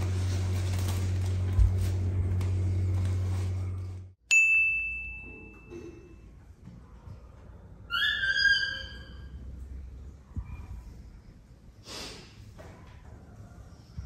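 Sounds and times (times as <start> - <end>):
steady low hum: 0.0 - 4.2
lower-pitched ringing tone: 4.3 - 6.2
sharp bright ding: 4.3 - 6.2.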